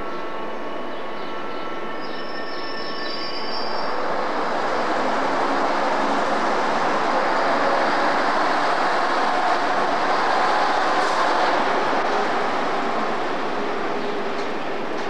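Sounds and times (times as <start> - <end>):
diesel train engines running: 0.0 - 15.0.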